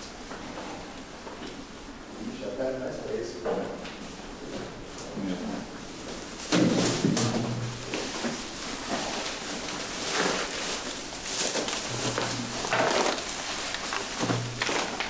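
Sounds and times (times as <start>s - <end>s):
plastic bags rustling: 4.6s - 15.0s.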